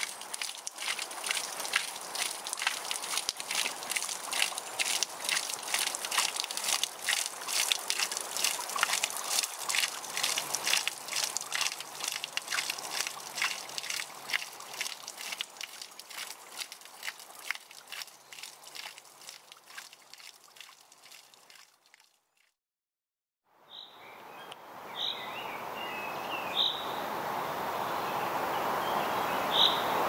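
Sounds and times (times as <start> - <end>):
water trickling onto rocks: 0.0 - 22.6.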